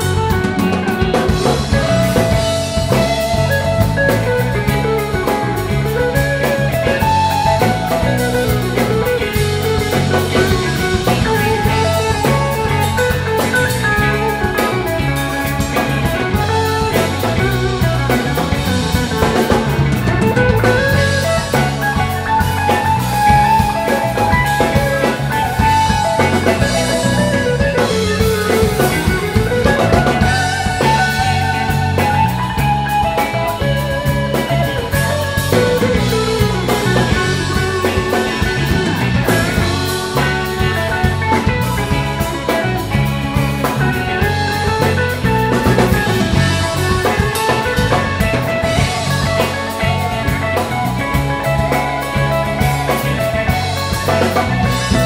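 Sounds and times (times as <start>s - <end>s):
drum kit: 0.0s - 55.0s
electric bass: 0.0s - 55.0s
electric guitars: 0.0s - 55.0s.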